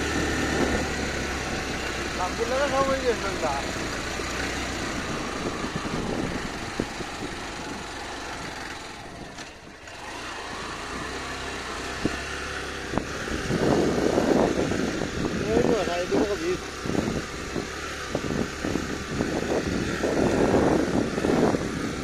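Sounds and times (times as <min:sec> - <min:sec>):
motorcycle engine labouring uphill: 0:00.0 - 0:22.0
road noise: 0:00.0 - 0:22.0.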